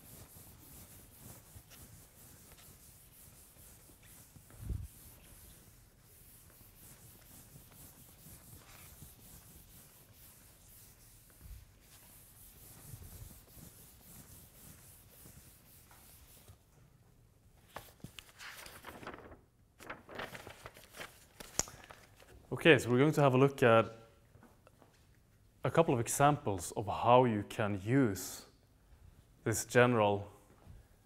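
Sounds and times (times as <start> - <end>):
chalkboard being wiped: 0.0 - 16.7
paper rustling and clicks: 17.7 - 22.4.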